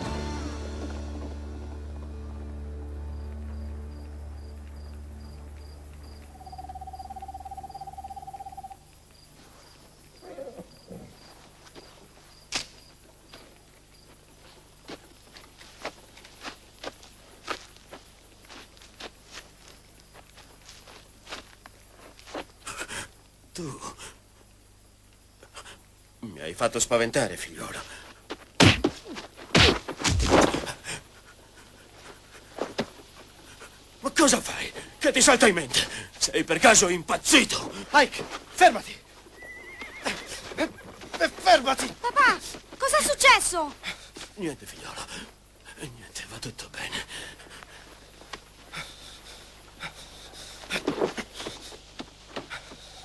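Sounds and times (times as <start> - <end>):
crickets chirping: 0.8 - 53.0
owl trilling: 6.1 - 8.8, 39.4 - 40.2
scuffling: 28.0 - 30.9, 31.6 - 33.9, 37.5 - 39.5, 40.1 - 45.4, 47.4 - 53.0
heavy breathing: 46.9 - 53.0.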